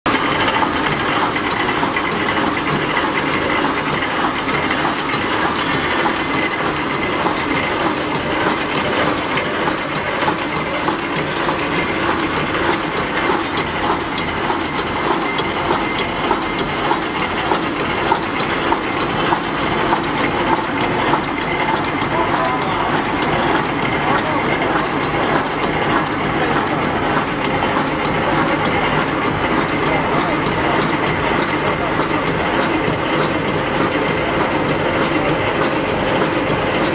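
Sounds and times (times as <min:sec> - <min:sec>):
machine clattering: 0:00.1 - 0:36.9.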